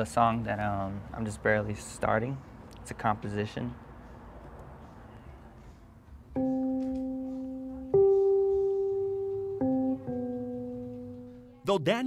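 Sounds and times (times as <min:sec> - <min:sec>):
digital piano chords: 0:06.3 - 0:12.0.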